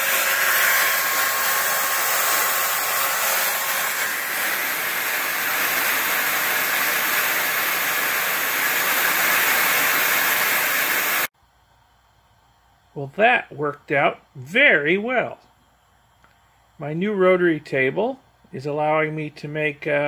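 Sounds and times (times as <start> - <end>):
router motor whining: 0.0 - 11.3.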